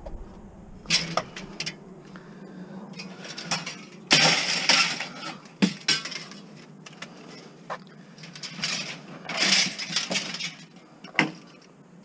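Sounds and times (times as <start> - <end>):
scrap metal clattering into bin: 3.2 - 6.4, 8.3 - 10.7.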